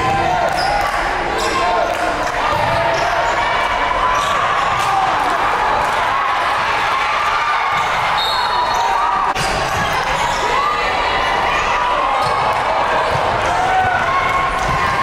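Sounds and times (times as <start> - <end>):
crowd noise in arena: 0.0 - 15.0
basketball bouncing: 2.5 - 3.0
sneakers squeaking on court: 7.7 - 10.6.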